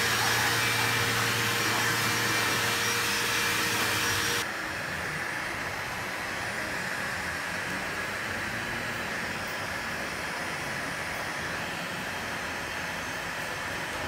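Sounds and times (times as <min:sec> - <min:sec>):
heat gun blowing: 0:00.0 - 0:04.5.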